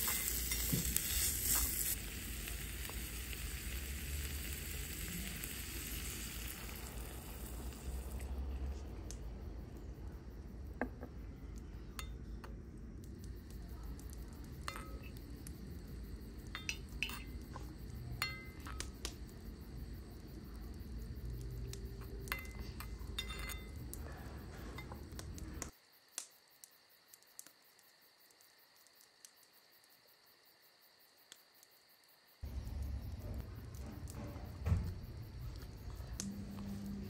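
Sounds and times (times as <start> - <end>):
steady low rumble: 6.5 - 25.7, 32.4 - 37.0
metal spatula clinking in pan: 16.5 - 17.4, 18.2 - 18.8, 22.3 - 23.8.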